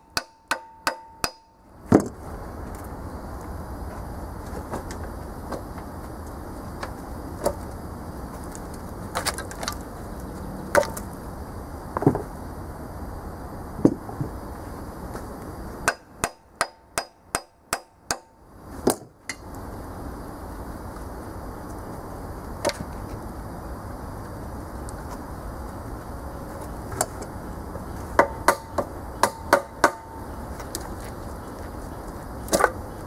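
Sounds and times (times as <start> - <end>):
hammer striking cast iron: 0.0 - 1.6, 15.8 - 18.4, 28.2 - 30.2.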